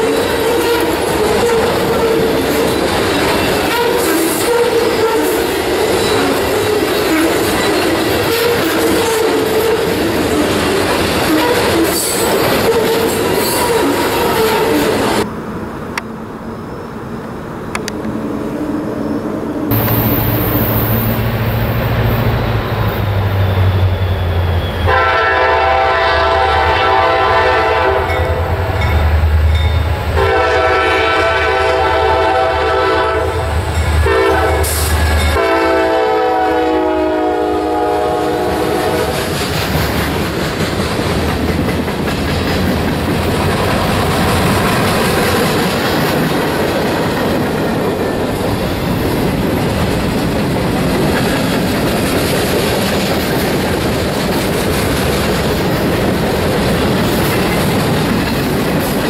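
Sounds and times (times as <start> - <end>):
train wheels rumbling on rail: 0.0 - 59.0
train air horn: 3.6 - 5.5, 11.2 - 14.9, 23.7 - 28.8, 30.2 - 39.3
diesel locomotive rumble: 17.4 - 59.0.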